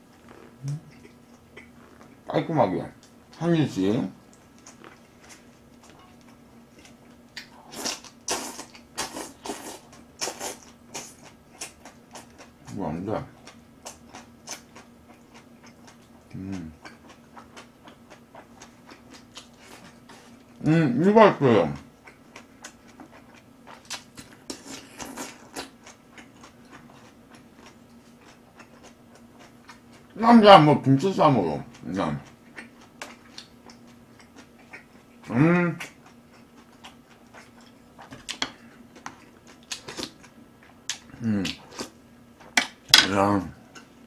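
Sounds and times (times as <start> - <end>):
faint steady hum: 0.0 - 44.0
wet chewing and mouth smacking: 0.1 - 2.3, 4.2 - 12.7, 13.3 - 20.6, 21.8 - 30.2, 31.7 - 42.8
wet chewing mouth clicks: 0.2 - 2.2.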